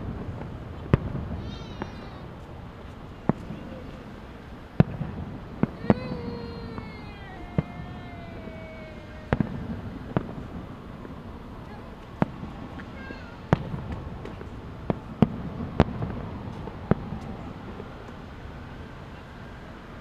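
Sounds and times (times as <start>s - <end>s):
distant fireworks bursting: 0.0s - 20.0s
steady background hum: 0.0s - 20.0s
long falling tone: 5.8s - 10.2s.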